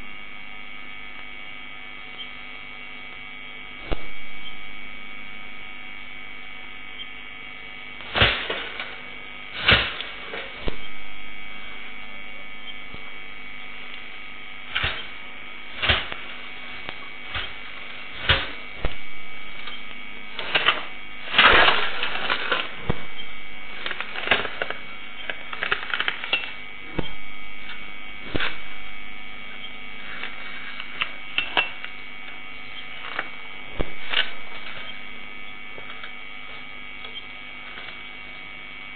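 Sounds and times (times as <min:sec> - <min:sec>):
steady electrical hum: 0:00.0 - 0:38.9
sharp clicks and cracks: 0:08.0 - 0:09.0, 0:09.6 - 0:11.2, 0:12.7 - 0:38.5.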